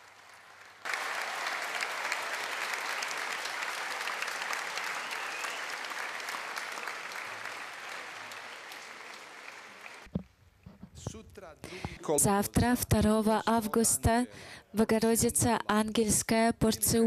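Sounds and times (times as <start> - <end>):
large crowd applauding: 0.0 - 10.1.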